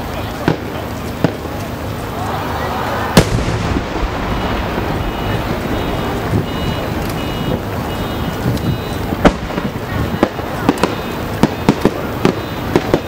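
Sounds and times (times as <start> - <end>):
steady background noise: 0.0 - 13.0
faint firework pops: 0.4 - 1.8, 3.1 - 7.7, 8.3 - 13.0
faint high beeping: 4.1 - 13.0.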